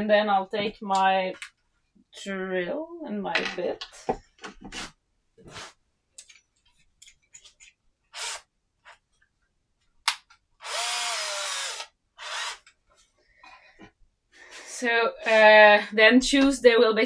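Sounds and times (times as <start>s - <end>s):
cordless drill motor whine: 10.6s - 12.6s.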